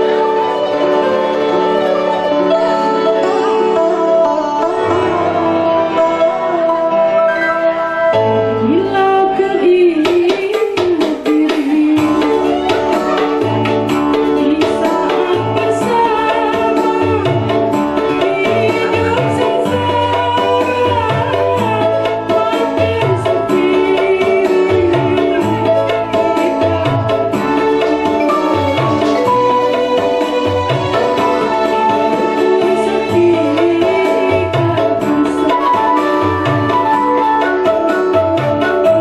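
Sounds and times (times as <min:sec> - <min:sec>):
musical accompaniment: 0:00.0 - 0:39.0
woman singing: 0:02.6 - 0:39.0
steady percussion beat: 0:10.0 - 0:39.0.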